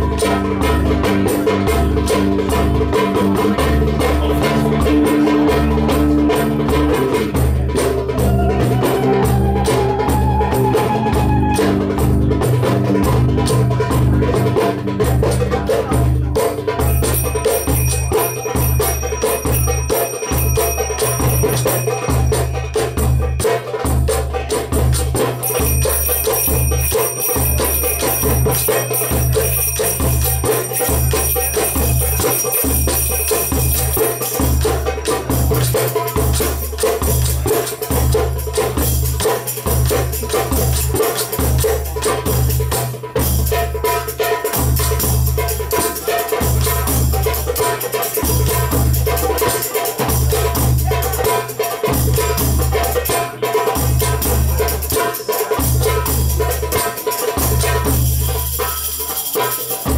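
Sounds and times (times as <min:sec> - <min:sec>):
hand drum strokes: 0:00.0 - 0:59.9
jingling tambourine: 0:12.2 - 0:59.9
finger cymbals ringing: 0:16.8 - 0:23.6, 0:25.4 - 0:37.9.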